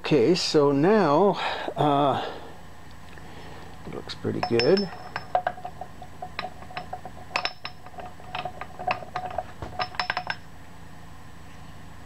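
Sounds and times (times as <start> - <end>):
metal gear parts clinking: 4.3 - 10.4.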